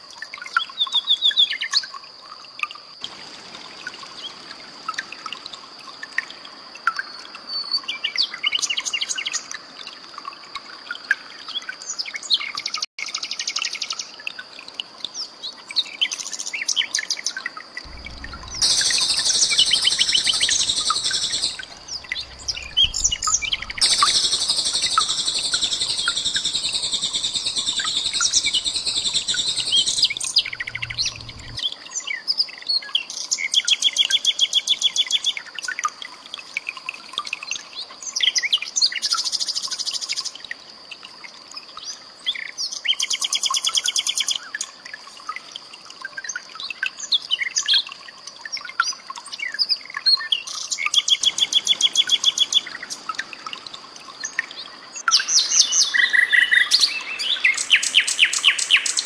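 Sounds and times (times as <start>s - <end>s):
nightingale singing: 17.9s - 31.6s, 55.0s - 59.0s
steady high-pitched tone: 17.9s - 31.6s.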